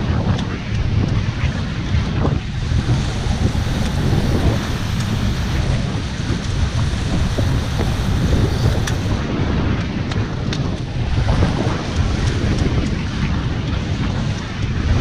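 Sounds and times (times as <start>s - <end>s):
wind buffeting microphone: 0.0s - 15.0s
water rushing past hulls: 2.4s - 9.6s
light ticks: 3.0s - 9.2s.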